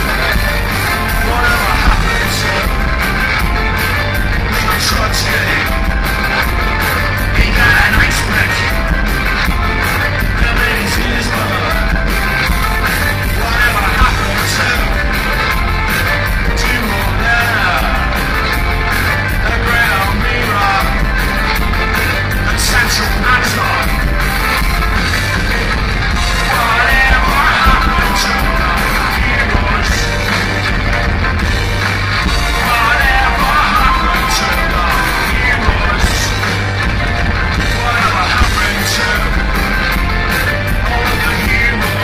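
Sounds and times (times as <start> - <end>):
person singing: 0.0 - 3.6, 7.2 - 8.8, 13.2 - 15.2, 26.2 - 30.3, 32.4 - 36.6, 37.6 - 39.6, 40.4 - 42.0
rock band playing live: 0.0 - 42.0.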